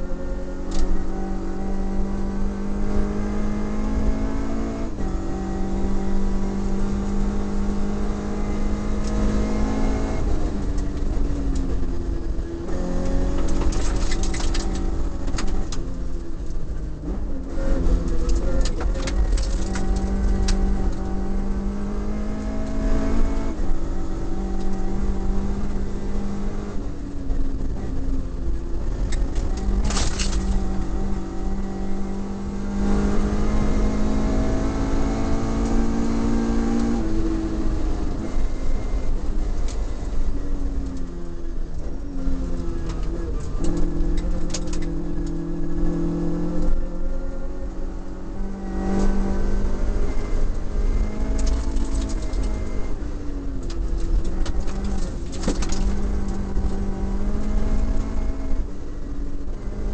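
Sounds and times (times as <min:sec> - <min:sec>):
car engine revving: 0:00.0 - 0:59.9
road rumble: 0:00.0 - 0:59.9
clicks and rattles: 0:13.4 - 0:15.8, 0:18.2 - 0:20.6, 0:29.1 - 0:30.7, 0:51.3 - 0:52.7, 0:53.6 - 0:56.7.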